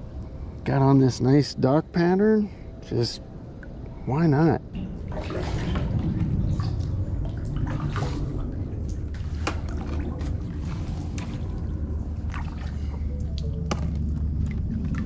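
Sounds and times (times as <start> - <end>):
steady low rumble: 0.0 - 15.0
paddle splashes and drips: 4.8 - 15.0.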